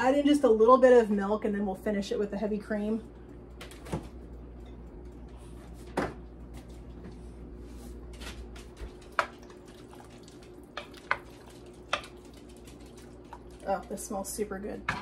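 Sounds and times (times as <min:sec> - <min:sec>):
steady low hum: 0:00.0 - 0:15.0
wooden spoon stirring stew: 0:08.6 - 0:14.3.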